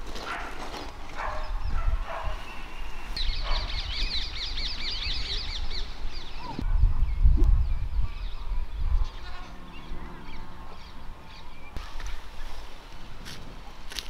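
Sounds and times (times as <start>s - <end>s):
birds chirping: 1.2s - 12.6s.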